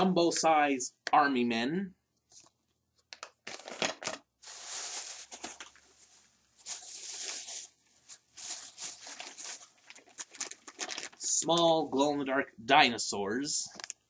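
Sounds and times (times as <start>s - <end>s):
plastic bag rustling: 3.4s - 11.4s.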